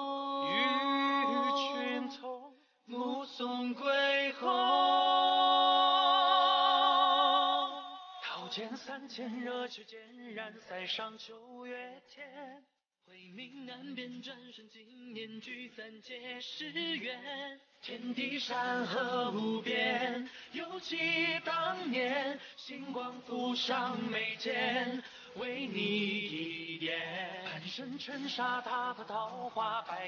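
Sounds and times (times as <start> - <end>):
person singing with wavering pitch: 0.0 - 8.7.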